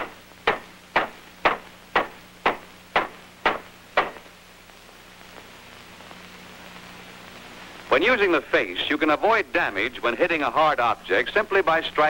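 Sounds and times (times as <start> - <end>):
hammer striking soft metal: 0.0 - 4.2.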